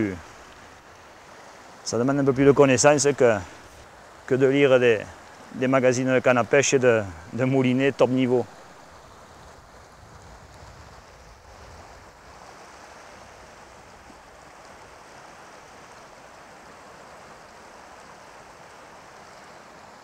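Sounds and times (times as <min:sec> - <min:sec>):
stream rushing over stones: 0:00.0 - 0:20.0.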